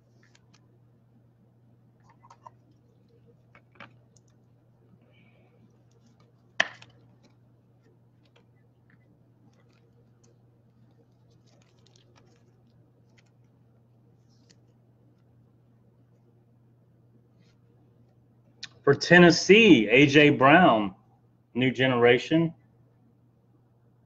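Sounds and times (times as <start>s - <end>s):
hands handling trading cards: 0.0s - 0.7s, 2.0s - 4.6s, 5.4s - 13.6s, 14.2s - 15.3s
low steady hum: 0.0s - 24.0s.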